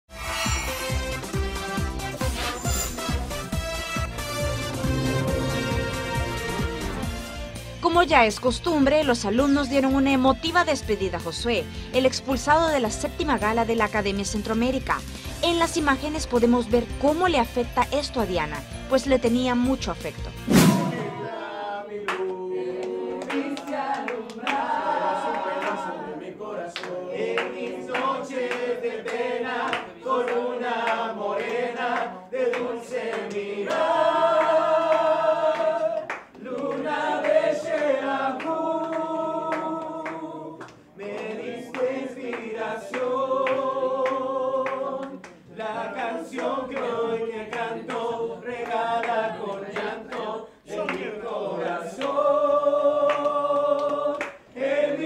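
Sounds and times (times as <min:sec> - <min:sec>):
group singing unaccompanied: 0:20.7 - 0:55.0.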